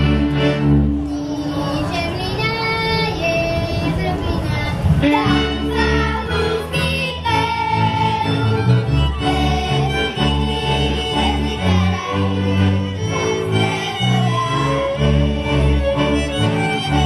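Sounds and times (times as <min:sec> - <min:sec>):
folk band playing a dance tune: 0:00.0 - 0:17.0.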